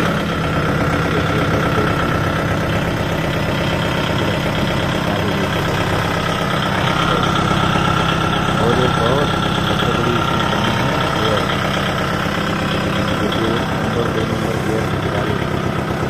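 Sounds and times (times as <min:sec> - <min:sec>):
diesel tractor engine idling: 0:00.0 - 0:16.0.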